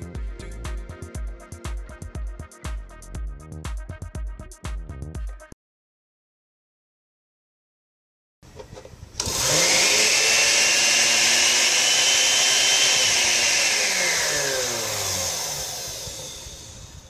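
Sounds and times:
blender motor whining: 9.2 - 17.0.

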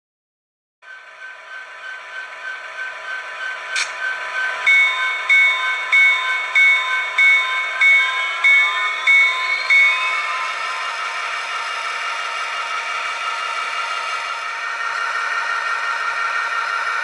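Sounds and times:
locomotive bell ringing: 0.8 - 14.4
diesel engine sound: 9.3 - 17.0.

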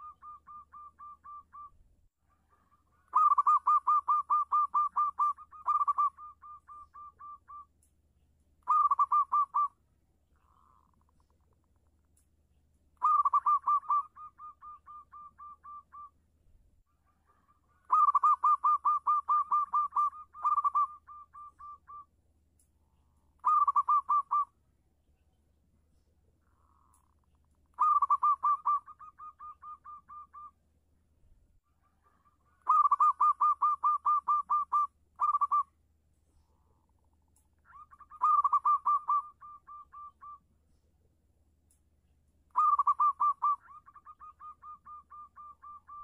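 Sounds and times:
dove cooing: 0.0 - 7.7, 8.6 - 9.8, 13.0 - 16.1, 17.0 - 22.1, 23.4 - 24.5, 26.5 - 30.6, 31.7 - 35.8, 37.7 - 40.4, 42.5 - 46.0.

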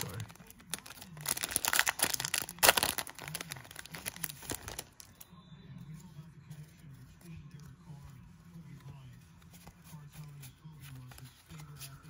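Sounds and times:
foil wrapper crinkling: 0.0 - 5.2.

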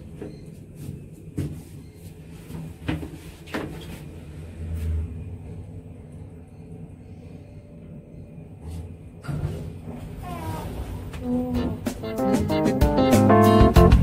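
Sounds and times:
elevator car humming: 3.5 - 13.9.

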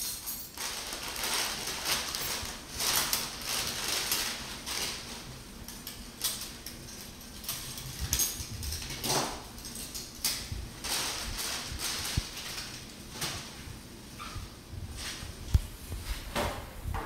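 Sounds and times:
paper rustling: 0.5 - 9.3, 10.0 - 13.6.

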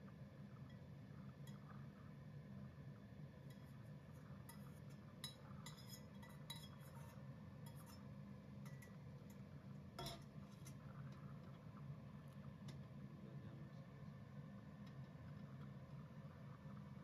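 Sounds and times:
low steady hum: 0.0 - 17.0
cookware clinking on metal grates: 4.5 - 9.0, 10.0 - 10.8.

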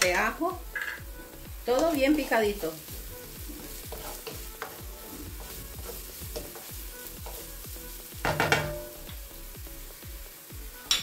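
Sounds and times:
vegetables sizzling in oil: 0.0 - 11.0
wooden spoon clattering on pan: 8.2 - 8.8.

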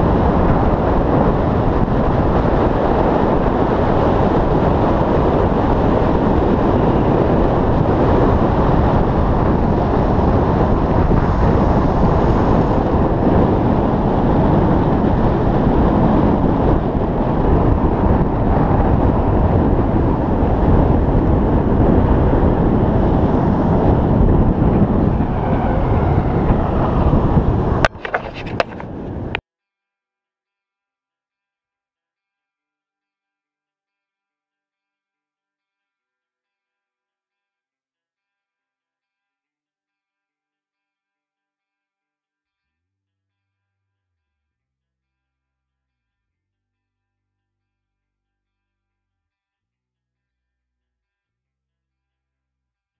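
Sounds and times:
longboard wheels on asphalt: 0.0 - 29.4
wind buffeting microphone: 0.0 - 29.4.

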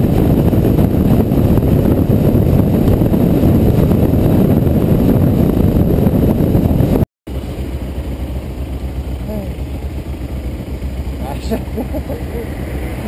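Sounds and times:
wind rushing over microphone: 0.0 - 7.1, 9.6 - 13.0
motorcycle engine at road speed: 0.0 - 13.0
motorcycle engine idling: 7.3 - 12.4.

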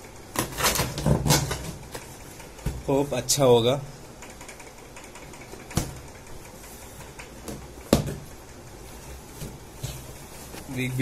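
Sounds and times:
steady low hum: 0.0 - 11.0
knocks on cardboard box: 7.5 - 8.2.

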